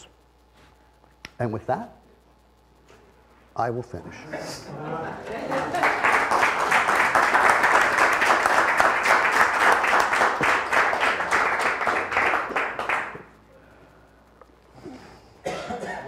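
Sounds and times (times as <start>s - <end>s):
audience applauding: 5.0s - 13.3s.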